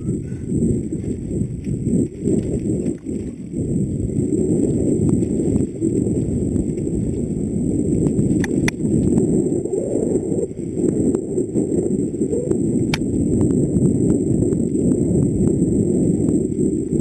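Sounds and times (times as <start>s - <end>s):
bike tyres over dirt: 0.0s - 17.0s
wind on microphone: 0.0s - 17.0s
sharp bike clicks: 8.3s - 8.9s.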